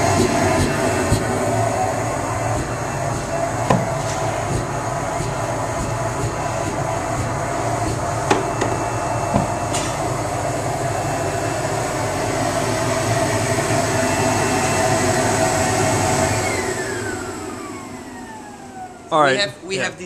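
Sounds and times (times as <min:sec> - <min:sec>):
vacuum pump running: 0:00.0 - 0:20.0
sharp knocks: 0:08.3 - 0:09.6.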